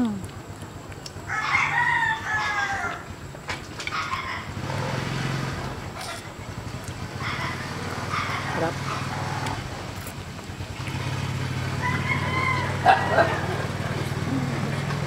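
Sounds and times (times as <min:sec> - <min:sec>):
rooster crowing: 0:01.3 - 0:03.2, 0:11.6 - 0:13.8.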